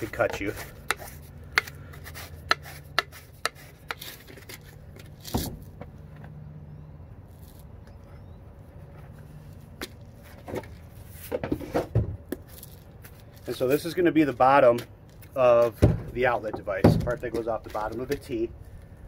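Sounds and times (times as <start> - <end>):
scraping burrs off plastic pipe: 0.0 - 5.7.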